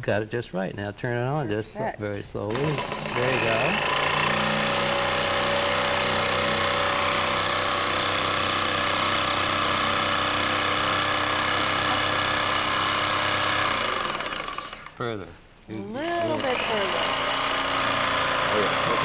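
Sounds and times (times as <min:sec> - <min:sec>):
jigsaw cutting wooden board: 0:02.5 - 0:15.0, 0:16.0 - 0:19.0.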